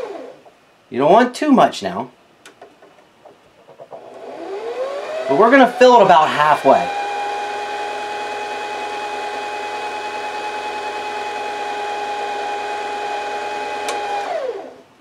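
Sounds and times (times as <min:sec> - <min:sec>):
sewing machine motor whine: 0:03.9 - 0:14.8.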